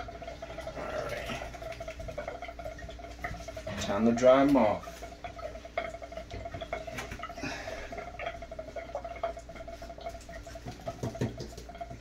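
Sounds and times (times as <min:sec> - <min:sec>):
steady hum: 0:00.0 - 0:12.0
claws clicking on bathtub: 0:04.4 - 0:12.0.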